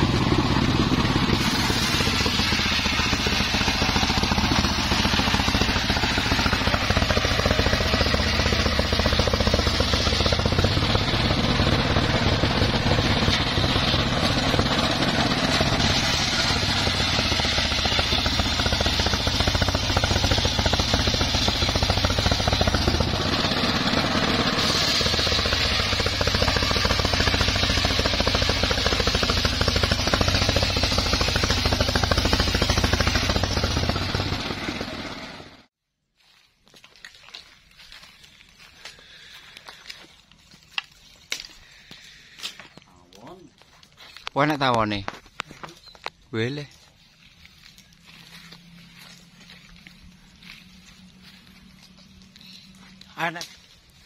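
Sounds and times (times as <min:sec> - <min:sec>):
circular sawmill running: 0:00.0 - 0:35.7.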